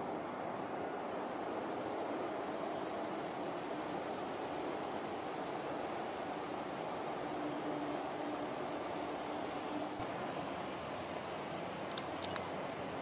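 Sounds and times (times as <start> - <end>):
small birds chirping: 2.7 - 3.4, 4.7 - 5.0, 6.7 - 8.4, 9.6 - 10.0.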